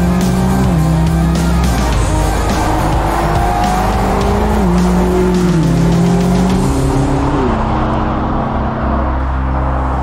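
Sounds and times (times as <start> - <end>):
background music: 0.0 - 10.0
car engine at speed: 0.0 - 10.0.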